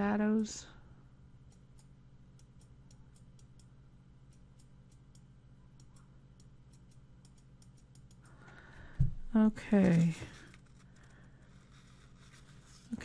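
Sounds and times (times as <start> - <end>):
low steady hum: 0.0 - 13.0
computer mouse clicks: 4.3 - 8.4.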